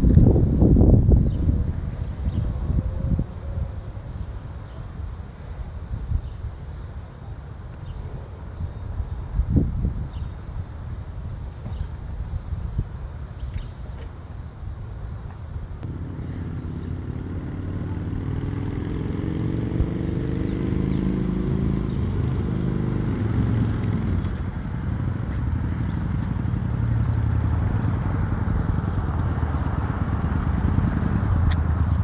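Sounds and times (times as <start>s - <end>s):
motorcycle engine accelerating: 15.8s - 32.0s.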